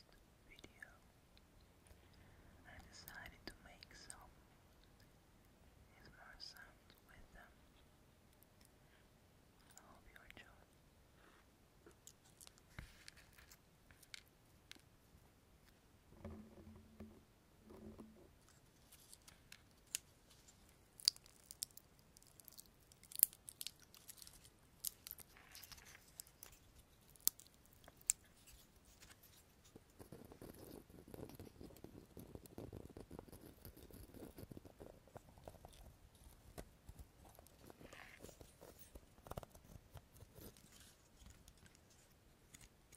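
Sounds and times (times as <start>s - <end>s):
pinecone scales clicking and crackling: 11.9s - 14.9s, 18.5s - 42.9s.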